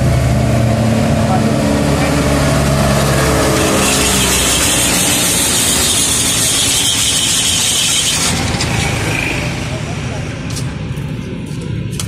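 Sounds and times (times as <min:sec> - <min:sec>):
ice-shaving machine grinding ice: 0:03.4 - 0:09.4.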